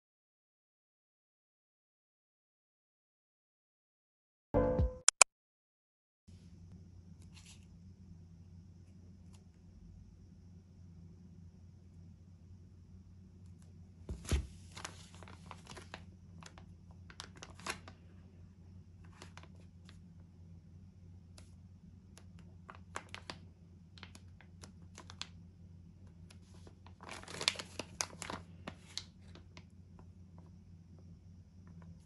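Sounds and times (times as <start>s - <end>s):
plastic pouch crinkling: 14.8s - 18.0s, 22.4s - 23.4s, 24.0s - 25.4s, 26.2s - 29.6s.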